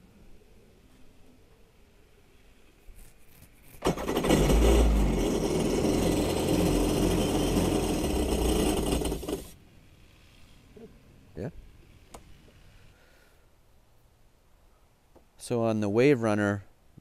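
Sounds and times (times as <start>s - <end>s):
jet ski engine running: 3.8s - 9.5s.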